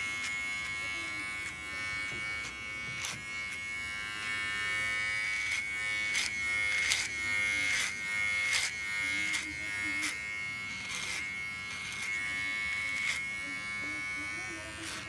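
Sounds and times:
electric hair clippers buzzing: 0.0s - 15.0s
clipper blades crackling through hair: 5.1s - 13.8s, 14.7s - 15.0s.

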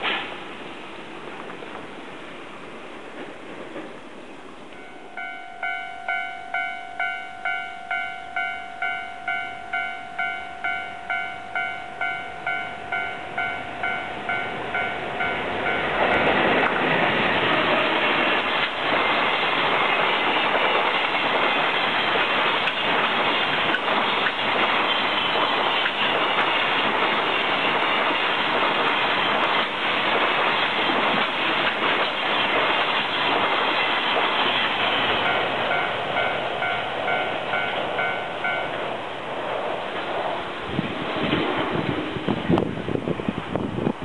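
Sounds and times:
train wheels clicking over rail joints: 0.0s - 0.5s, 1.2s - 4.9s, 12.0s - 44.0s
freight train passing: 0.0s - 44.0s
level crossing bell dinging: 4.7s - 16.3s, 35.2s - 38.8s.

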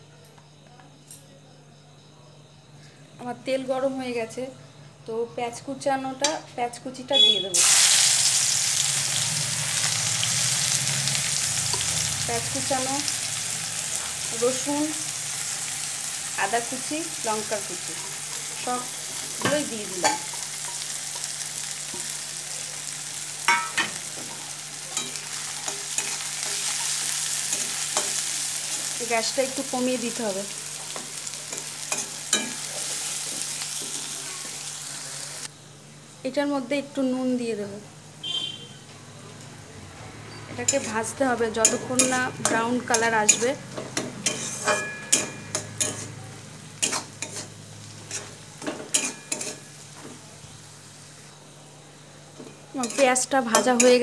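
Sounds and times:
vegetables sizzling in hot oil: 7.0s - 35.6s, 40.2s - 54.0s
metal spatula scraping pan: 44.2s - 46.2s, 46.8s - 49.7s.

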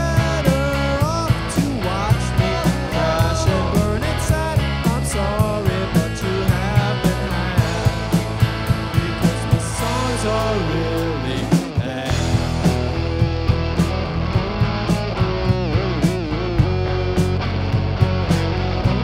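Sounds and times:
person singing lead vocal: 0.0s - 13.0s
drum kit beat: 0.0s - 19.0s
electric bass: 0.0s - 19.0s
electric guitars: 0.0s - 19.0s.

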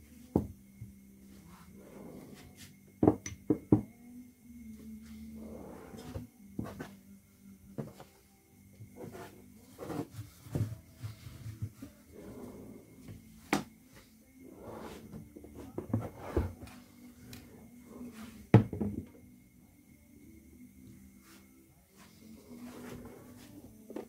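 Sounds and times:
faint steady hum: 0.0s - 24.0s
hard objects knocking: 3.0s - 4.0s, 18.5s - 19.2s.

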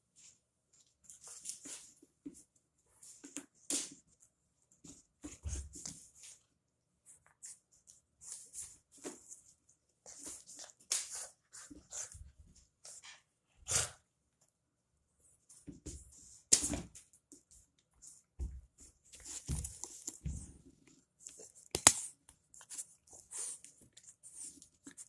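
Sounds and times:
footsteps in socks on hardwood: 18.4s - 20.7s.

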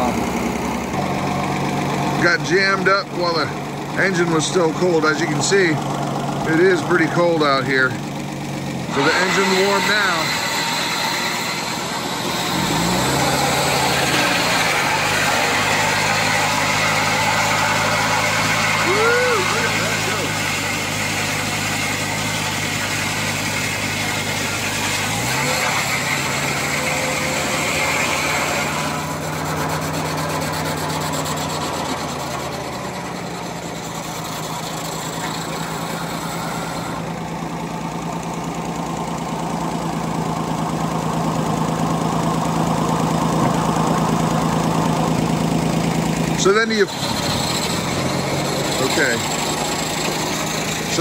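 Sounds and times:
truck-like engine running: 0.0s - 51.0s
saw blade hissing through wood: 8.9s - 37.0s.

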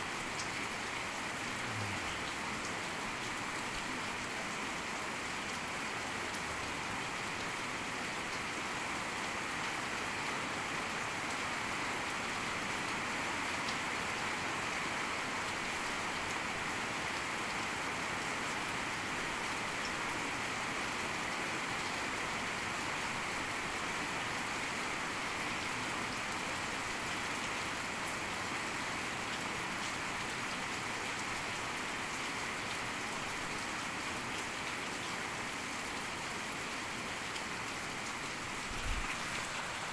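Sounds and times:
heavy rain falling: 0.0s - 39.9s.

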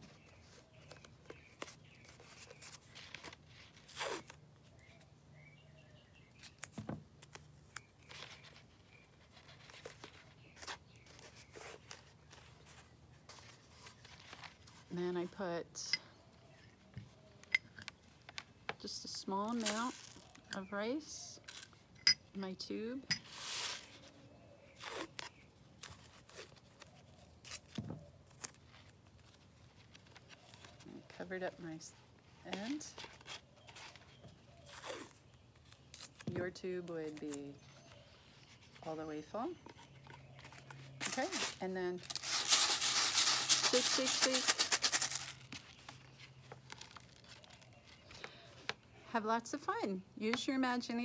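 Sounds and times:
tape and cardboard tube handling: 0.0s - 5.1s, 6.2s - 15.4s, 16.7s - 21.6s, 23.0s - 48.8s
tape tearing: 0.8s - 4.4s, 19.4s - 20.4s, 24.7s - 29.4s, 34.6s - 36.4s, 40.4s - 47.7s.

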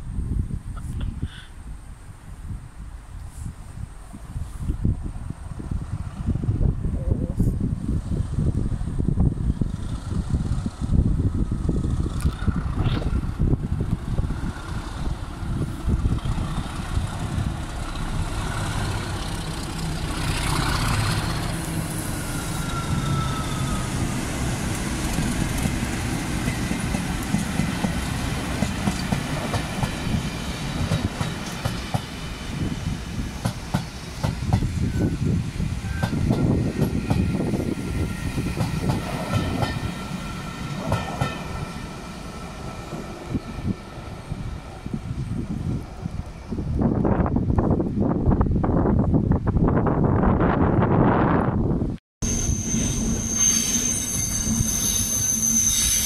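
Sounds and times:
locomotive engine drone: 5.3s - 47.2s
train wheels clacking on rails: 22.7s - 32.3s, 33.3s - 35.0s, 35.9s - 42.0s.

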